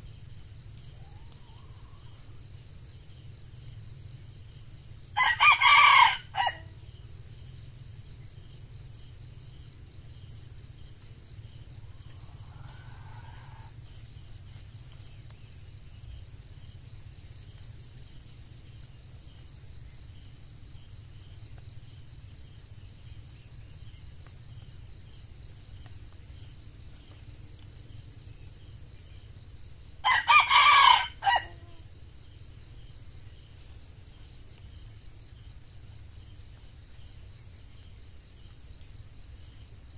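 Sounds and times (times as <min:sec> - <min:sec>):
high insect drone: 0:00.0 - 0:39.9
rooster crowing: 0:05.2 - 0:06.7, 0:12.1 - 0:13.8, 0:30.0 - 0:31.8.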